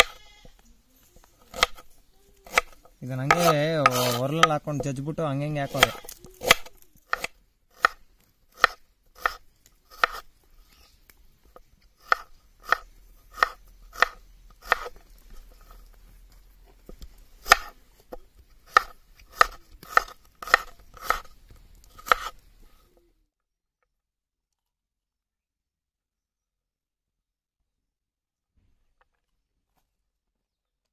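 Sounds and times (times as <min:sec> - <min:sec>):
knife chopping on cutting board: 0:02.4 - 0:04.9, 0:05.7 - 0:08.0, 0:08.6 - 0:10.2, 0:12.0 - 0:15.0, 0:17.4 - 0:17.7, 0:18.7 - 0:21.3, 0:22.0 - 0:22.3.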